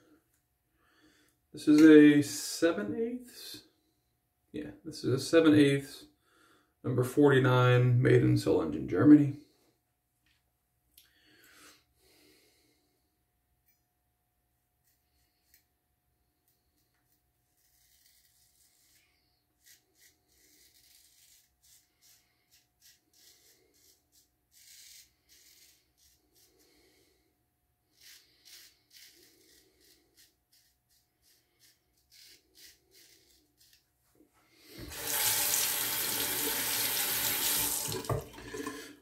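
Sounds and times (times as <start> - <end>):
razor scraping stubble: 16.8 - 26.7, 27.9 - 33.8
tap water running into sink: 34.8 - 38.9.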